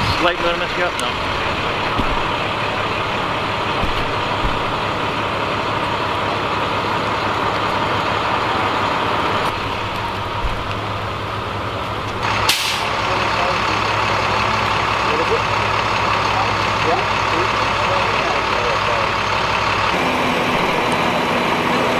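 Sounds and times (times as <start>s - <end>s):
heavy vehicle engines idling: 0.0s - 21.9s
short loud hiss: 12.5s - 12.9s.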